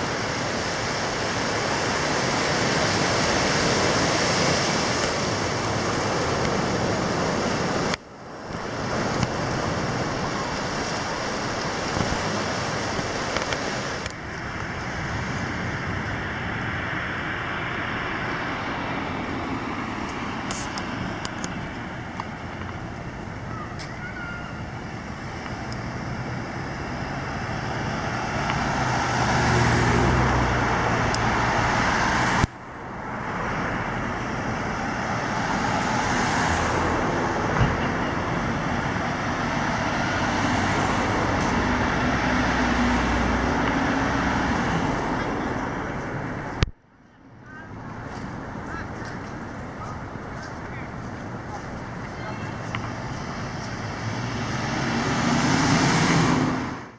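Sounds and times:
surf breaking on rocks: 0:00.0 - 0:08.0
cars driving past: 0:00.0 - 0:56.9.

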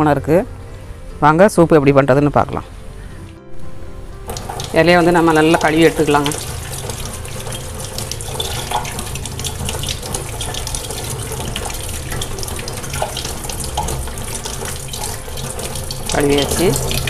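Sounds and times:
tap water running into sink: 0:04.2 - 0:17.0.

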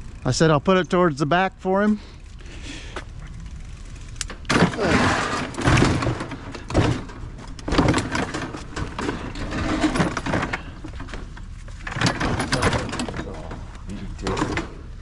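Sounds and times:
metal scrap clattering: 0:04.5 - 0:10.8.

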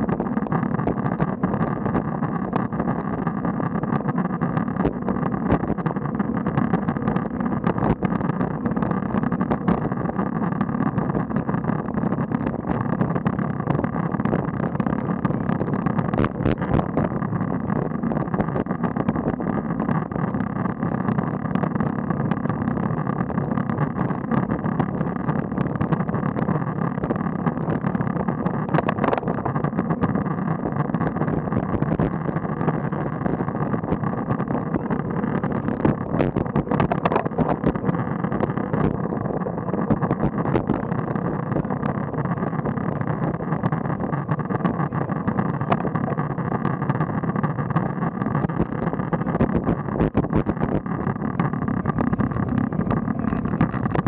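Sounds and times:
small clicks: 0:00.0 - 0:54.0
wind rush: 0:51.4 - 0:54.0.

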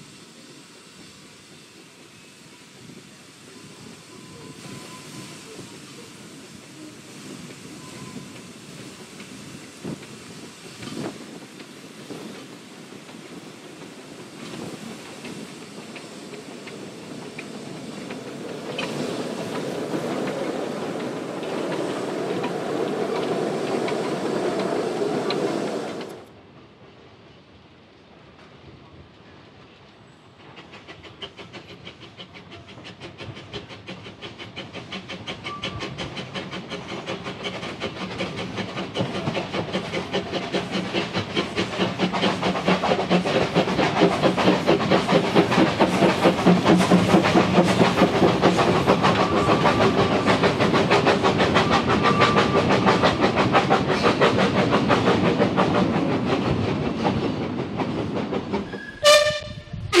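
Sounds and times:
steam train passing: 0:00.0 - 1:00.0
steam whistle: 0:58.7 - 1:00.0.

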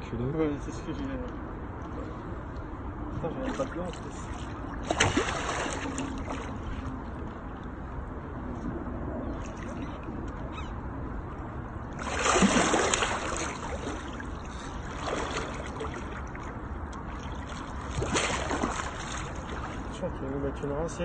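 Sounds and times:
fish splashing at surface: 0:04.8 - 0:06.6, 0:12.0 - 0:16.4, 0:17.3 - 0:19.9.

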